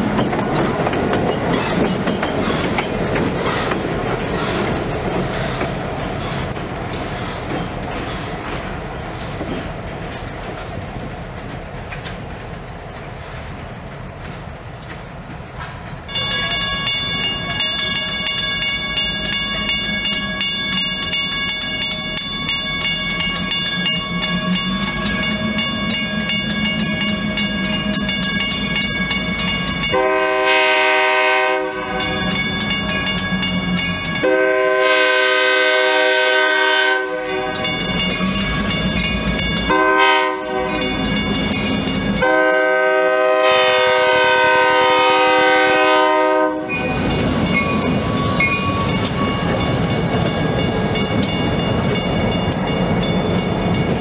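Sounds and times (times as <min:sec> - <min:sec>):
wheels on rails: 0:00.0 - 0:30.0, 0:31.6 - 0:34.7, 0:37.2 - 0:42.7, 0:46.6 - 0:54.0
diesel locomotive engine: 0:00.0 - 0:54.0
crossing bell ringing: 0:16.1 - 0:54.0
locomotive air horn: 0:29.9 - 0:32.4, 0:34.2 - 0:37.7, 0:39.7 - 0:41.0, 0:42.2 - 0:46.8.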